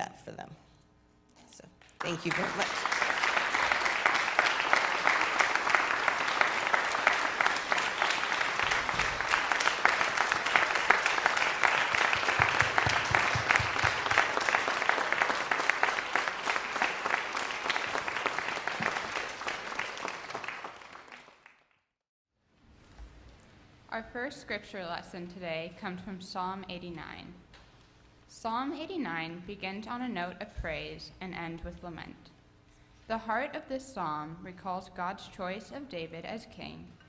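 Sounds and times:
congregation applauding: 1.8s - 21.8s.

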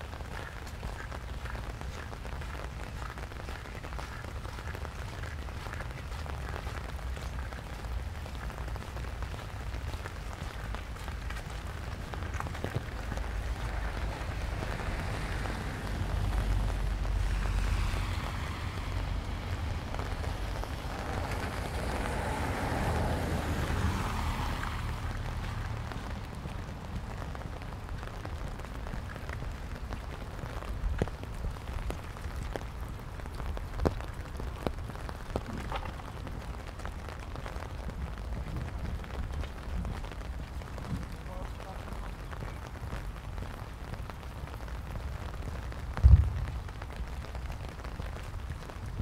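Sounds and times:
rain falling on street: 0.0s - 49.0s
wind rumbling on microphone: 0.0s - 49.0s
car tyres hissing on wet road: 0.4s - 29.8s.

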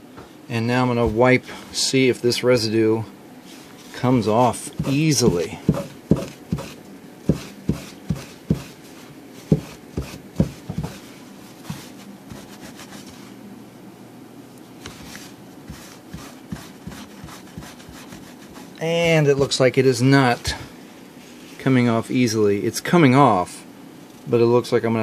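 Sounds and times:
cloth rag scrubbing jacket sleeve: 3.5s - 13.3s, 14.8s - 19.2s.

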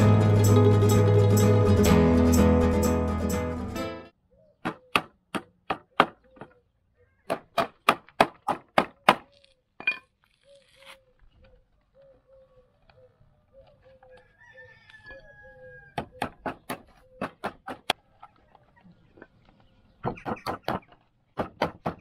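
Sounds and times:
bird calling: 4.2s - 7.5s, 8.9s - 14.5s, 15.1s - 21.1s.

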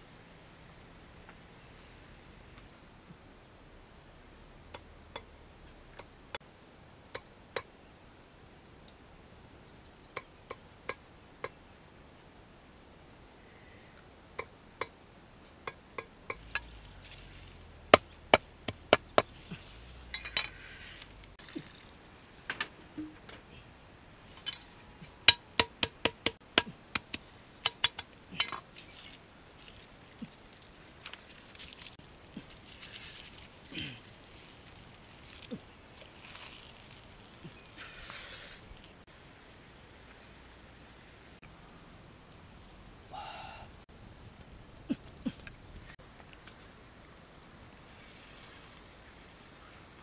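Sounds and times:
wood fire crackling: 13.9s - 24.4s, 25.1s - 39.6s, 41.4s - 50.0s.

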